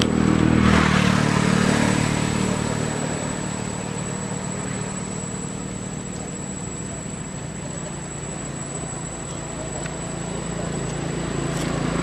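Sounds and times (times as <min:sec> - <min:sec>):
vehicle passing by: 0:00.0 - 0:06.0.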